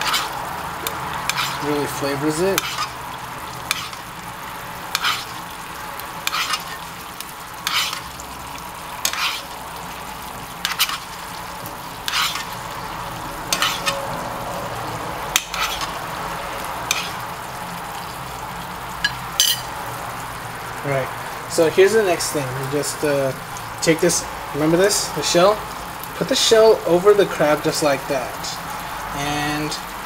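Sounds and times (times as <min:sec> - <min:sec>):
metal spoon scraping a pan: 0:00.0 - 0:09.6, 0:10.5 - 0:11.3, 0:11.9 - 0:12.8, 0:13.5 - 0:14.2, 0:15.3 - 0:16.0, 0:16.8 - 0:17.3, 0:19.1 - 0:19.7
sauce bubbling in a frying pan: 0:00.0 - 0:30.0.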